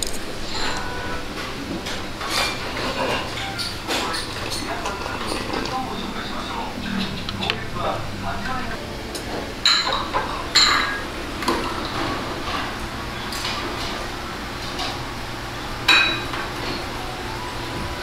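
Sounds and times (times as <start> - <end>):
tableware clinking: 0.0 - 8.5, 9.3 - 14.0, 15.9 - 16.9
restaurant ambience hum: 0.0 - 18.0.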